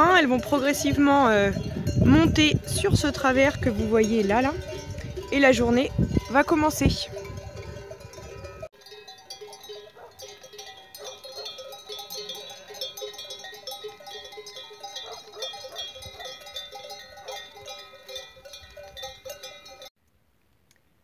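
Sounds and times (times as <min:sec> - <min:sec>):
sheep bells jangling: 0:00.0 - 0:19.9.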